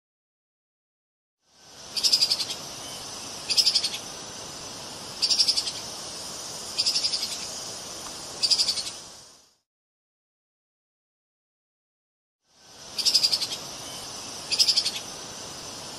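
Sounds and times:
steady background hiss: 1.4s - 9.6s, 12.5s - 15.9s.

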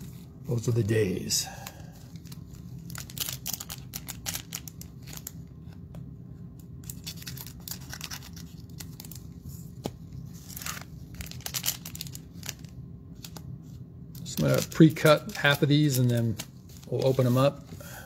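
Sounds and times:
plastic wrappers crinkling: 2.1s - 5.4s, 6.8s - 9.3s, 10.4s - 13.4s, 14.2s - 17.6s.

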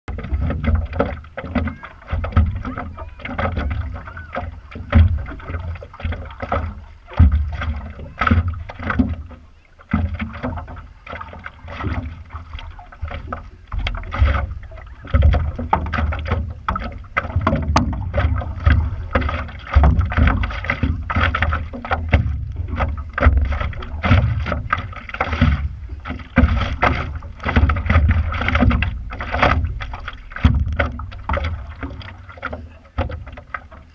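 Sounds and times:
paddle dipping in water: 0.0s - 33.9s
water lapping against paddleboard: 0.0s - 33.9s
steady low rumble: 11.8s - 32.3s.

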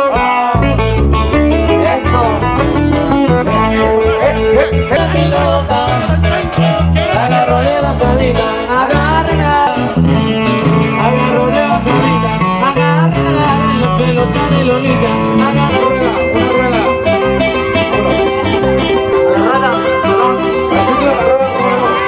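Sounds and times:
bass line: 0.0s - 22.0s
live band with guitars: 0.0s - 22.0s.

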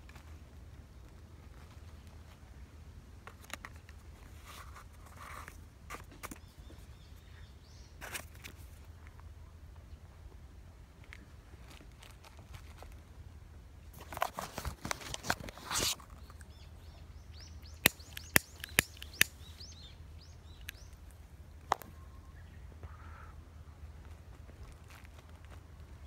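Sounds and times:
sharp clicks: 17.7s - 19.5s
faint bird chirps: 21.8s - 23.4s.

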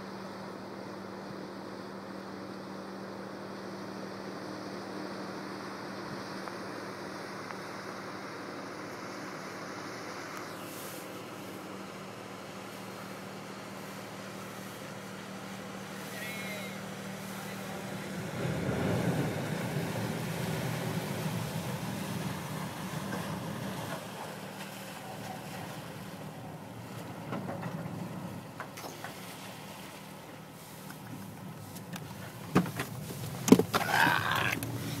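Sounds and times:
boat engines humming: 0.0s - 35.0s
churning water: 6.2s - 35.0s.

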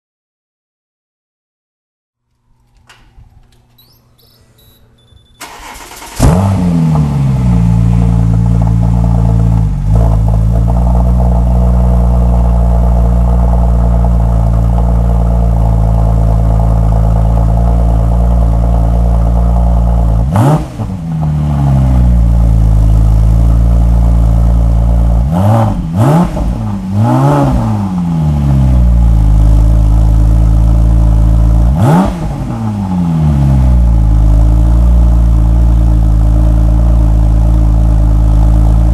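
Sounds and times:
engine cranking: 2.3s - 6.6s
car engine idling: 2.3s - 38.9s
engine revving: 3.6s - 38.9s.

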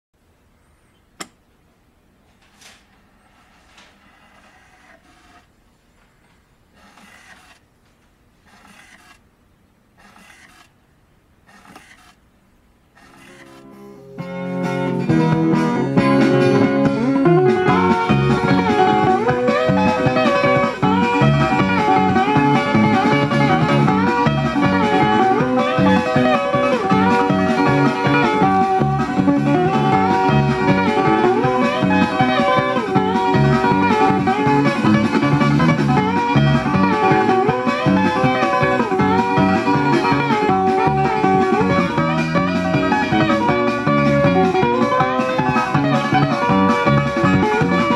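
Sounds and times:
guitar-led music from a record: 13.4s - 47.9s.

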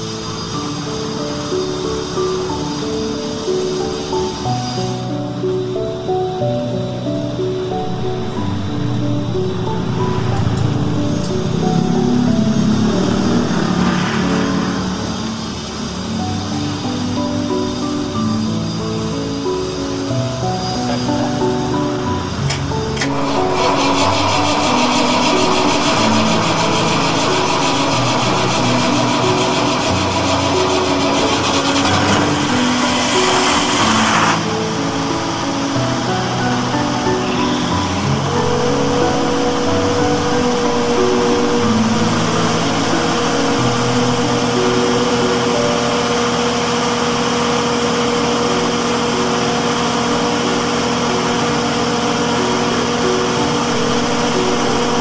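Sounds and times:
background music: 0.0s - 55.0s
generator engine running: 19.9s - 55.0s.

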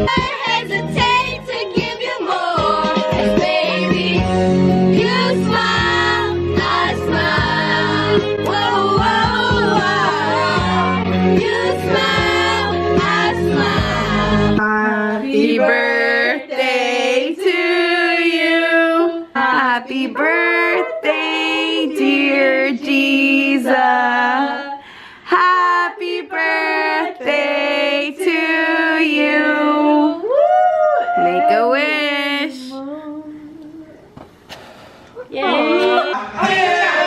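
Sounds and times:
pop song with heavy bass beat: 0.0s - 14.8s
voices singing: 0.0s - 30.5s.

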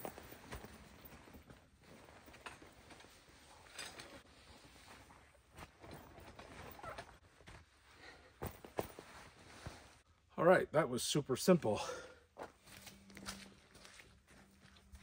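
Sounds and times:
canvas tent fabric rustling: 0.0s - 10.1s.

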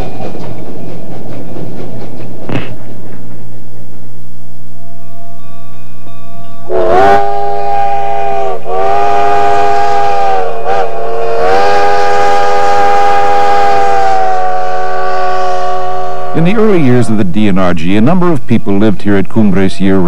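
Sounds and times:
steam whistle blasts: 6.6s - 16.4s.

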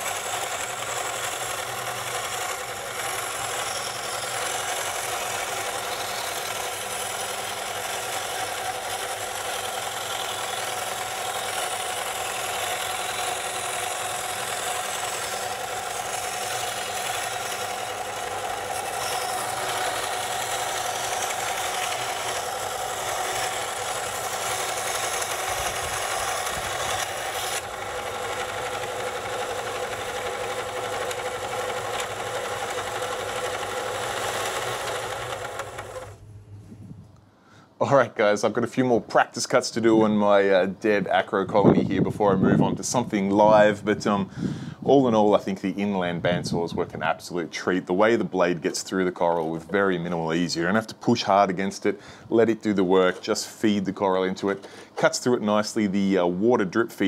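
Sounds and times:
band saw rasping through coral: 0.0s - 36.2s.

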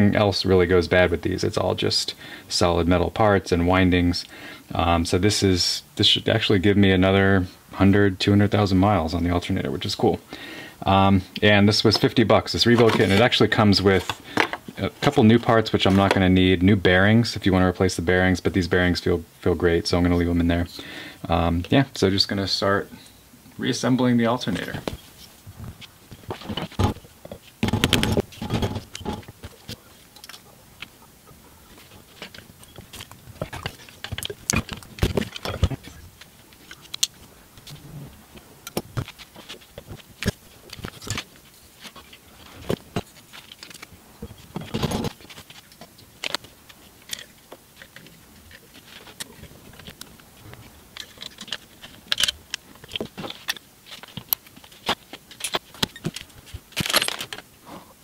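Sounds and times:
metal parts clicking and clinking: 51.0s - 57.4s.

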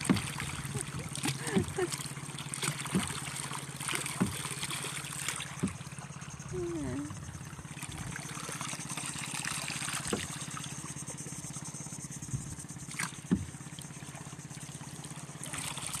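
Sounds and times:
boat engine running: 0.0s - 16.0s
water trickling around hull: 0.0s - 16.0s
sharp knocks: 5.6s - 5.9s.

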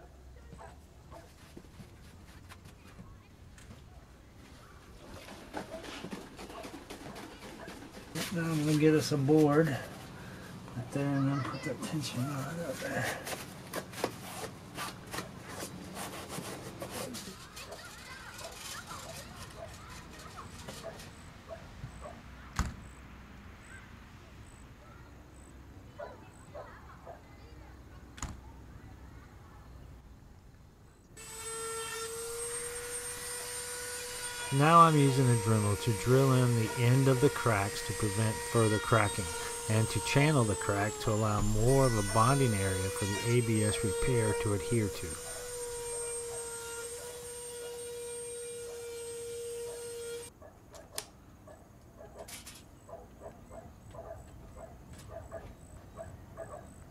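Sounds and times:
rotary tool high-pitched whine: 31.2s - 50.3s.

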